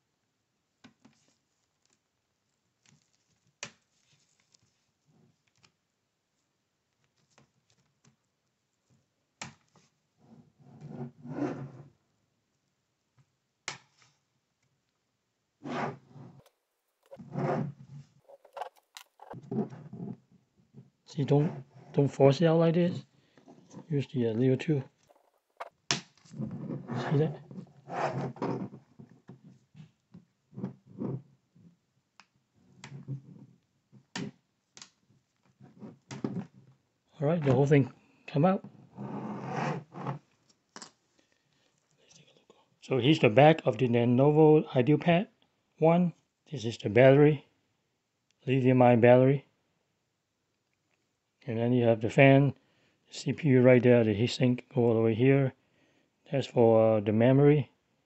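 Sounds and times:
plastic rubbing and scraping: 0:15.6 - 0:22.0, 0:25.0 - 0:29.8, 0:38.8 - 0:40.4
handling rustle: 0:18.2 - 0:19.7.

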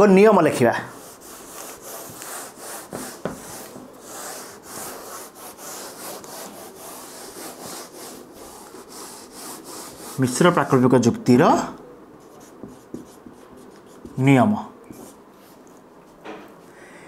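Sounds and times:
eraser rubbing on whiteboard: 0:00.9 - 0:10.6, 0:12.2 - 0:14.2.

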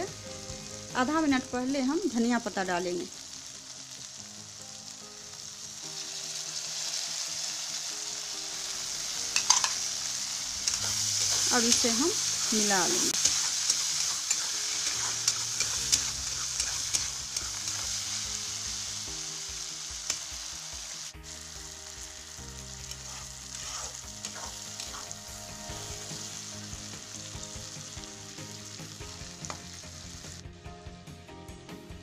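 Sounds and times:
vegetables sizzling in oil: 0:00.0 - 0:30.5
metal spatula clicking on pan: 0:09.4 - 0:09.8.

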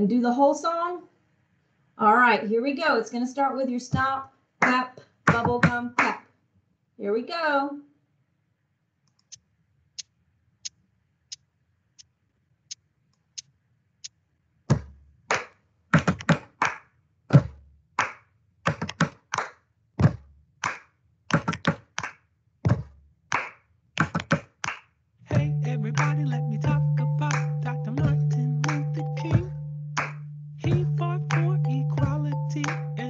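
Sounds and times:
foot stomp: 0:04.0 - 0:05.8, 0:14.7 - 0:15.0
hand clap: 0:04.6 - 0:06.2, 0:14.7 - 0:24.9, 0:26.0 - 0:26.2, 0:27.3 - 0:27.6, 0:28.6 - 0:29.4, 0:30.0 - 0:30.3, 0:31.3 - 0:32.9
slaps on thighs: 0:04.6 - 0:06.2, 0:14.7 - 0:24.9.

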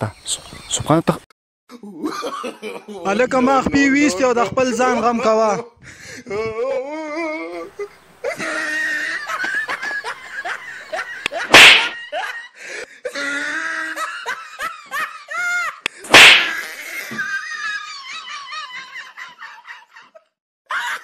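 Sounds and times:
person laughing and giggling: 0:01.7 - 0:03.1, 0:06.2 - 0:21.0
loud sudden hits: 0:11.5 - 0:12.0, 0:16.1 - 0:16.6.

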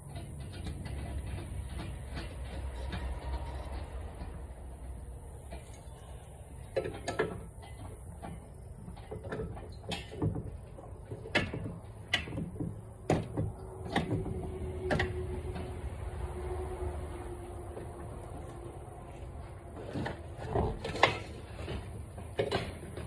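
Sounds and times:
lug nuts clicking and clinking: 0:06.6 - 0:15.7, 0:20.4 - 0:23.0.

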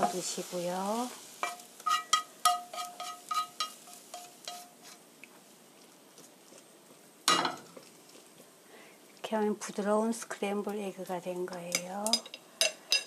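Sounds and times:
chopsticks tapping a frying pan: 0:01.4 - 0:05.0, 0:11.5 - 0:13.0
chopsticks scraping a pan: 0:01.4 - 0:05.1, 0:11.6 - 0:13.0.

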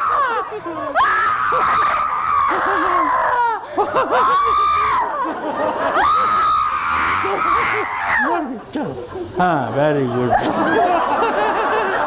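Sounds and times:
woman shrieking laughter: 0:00.0 - 0:08.3
people laughing: 0:00.0 - 0:12.0.

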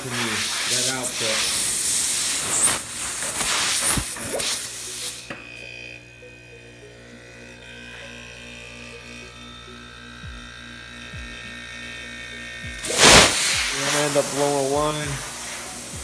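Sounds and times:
faint regular pulsing: 0:04.1 - 0:16.0
air conditioner compressor humming: 0:06.0 - 0:16.0.

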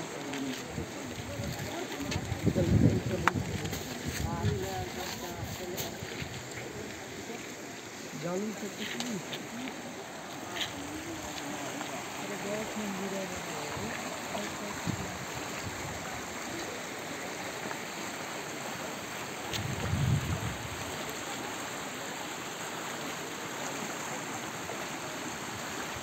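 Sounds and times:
floodwater rushing: 0:00.0 - 0:26.0.

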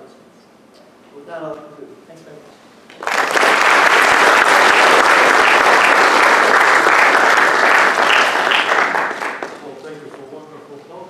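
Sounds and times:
audience applause: 0:02.9 - 0:09.8.

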